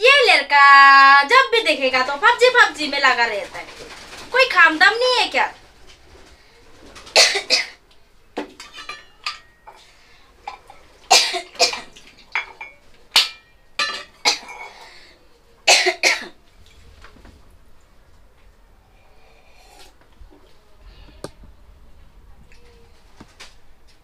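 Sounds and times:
person coughing: 0:07.2 - 0:07.8, 0:15.7 - 0:16.4.

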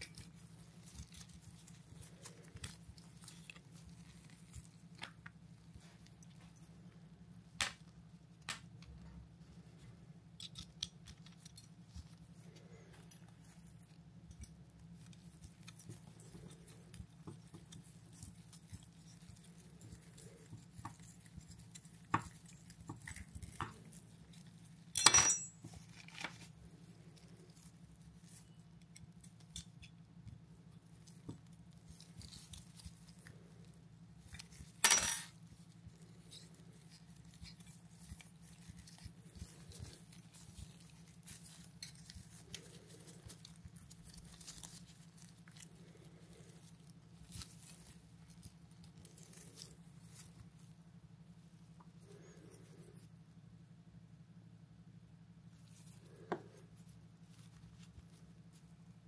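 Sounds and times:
steady low hum: 0:00.0 - 0:59.0
loud metallic clinks: 0:25.0 - 0:25.5, 0:34.8 - 0:35.3.

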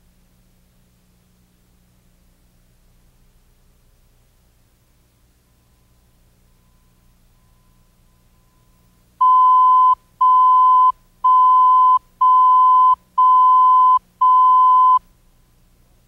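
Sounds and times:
countdown beeps: 0:09.2 - 0:15.0.

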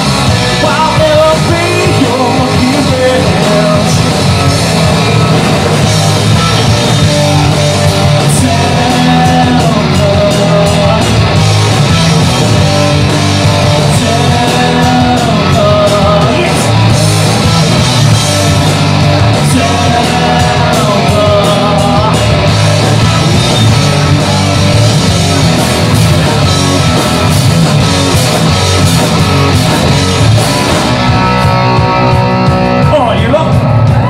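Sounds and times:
live rock band playing: 0:00.0 - 0:34.0
man singing into microphone: 0:00.6 - 0:04.1, 0:08.2 - 0:11.2, 0:13.9 - 0:16.7, 0:19.5 - 0:22.4.

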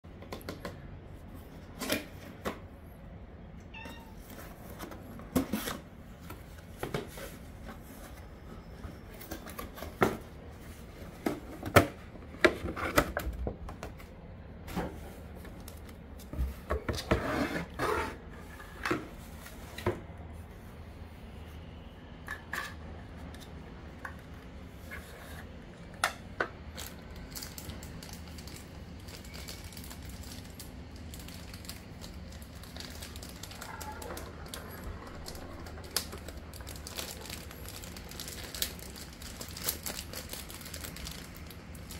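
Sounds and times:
cat meowing: 0:03.7 - 0:04.2.

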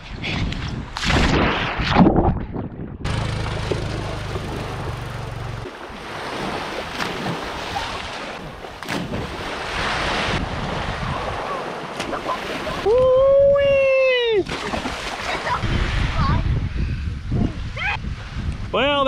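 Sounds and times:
wind rumble on microphone: 0:00.0 - 0:05.7, 0:08.4 - 0:11.6, 0:12.7 - 0:14.5, 0:15.5 - 0:19.0
small waves washing onto shore: 0:03.1 - 0:13.0
brief splashes: 0:05.6 - 0:10.4, 0:14.4 - 0:16.1.

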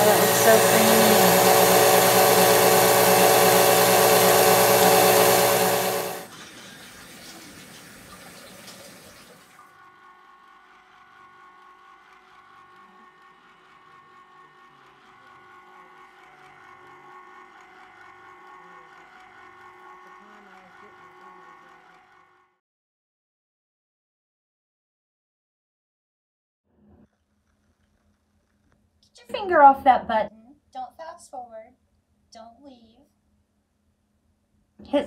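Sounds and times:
electric mixer whirring: 0:00.0 - 0:06.4, 0:09.6 - 0:22.6.

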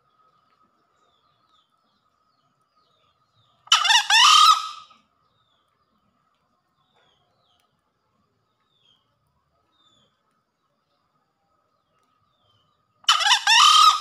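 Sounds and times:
junglefowl crowing: 0:03.7 - 0:04.9, 0:13.1 - 0:14.0.

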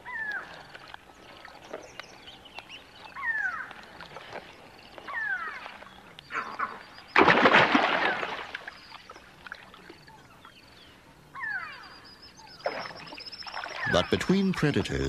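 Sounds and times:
crocodile hatchlings chirping: 0:11.4 - 0:15.0.

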